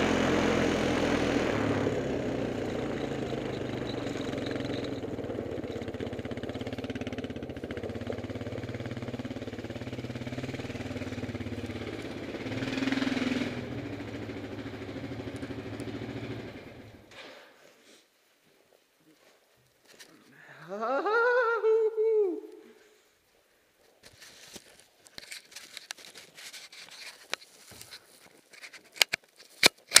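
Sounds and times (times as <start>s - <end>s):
small vehicle engine running: 0.0s - 17.2s
small clicks: 27.2s - 30.0s.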